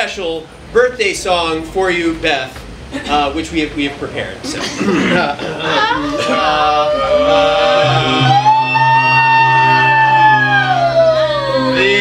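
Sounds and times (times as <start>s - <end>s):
guitar playing held notes: 7.1s - 11.8s.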